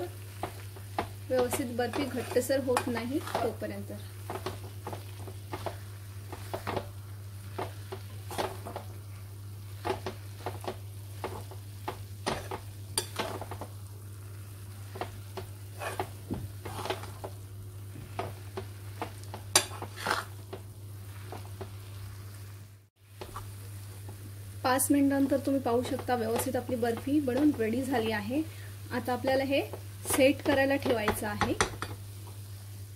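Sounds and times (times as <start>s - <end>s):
spatula scraping a pan: 0.1s - 9.0s, 9.7s - 13.7s, 14.7s - 22.5s.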